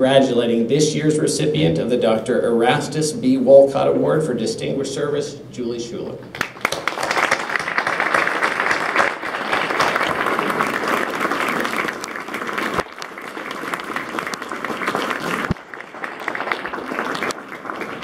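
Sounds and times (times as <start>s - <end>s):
audience applauding: 6.3s - 18.0s.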